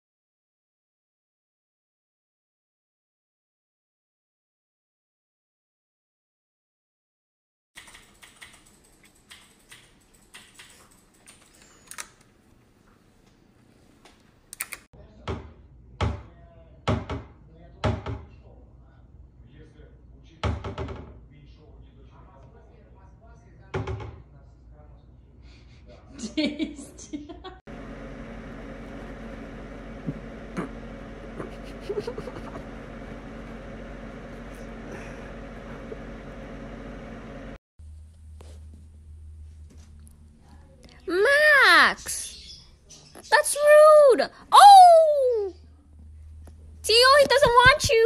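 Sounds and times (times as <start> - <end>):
keyboard keys clicking: 7.8 - 12.3
low room hum: 21.2 - 48.0.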